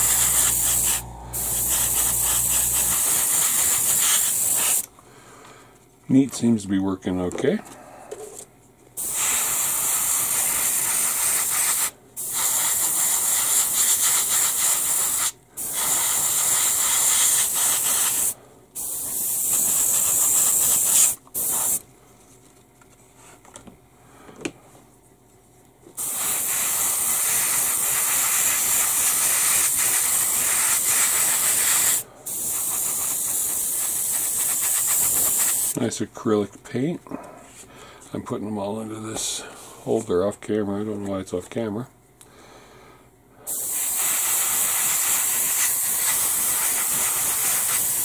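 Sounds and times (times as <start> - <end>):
airbrush spraying hiss: 0.0 - 4.9, 9.0 - 21.8, 26.0 - 35.8, 43.5 - 48.0.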